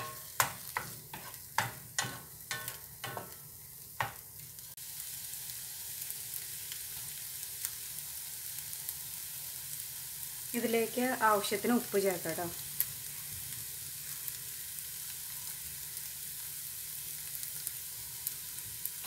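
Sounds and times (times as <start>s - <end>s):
spatula scraping a frying pan: 0.0s - 3.4s
food sizzling in oil: 0.0s - 19.0s.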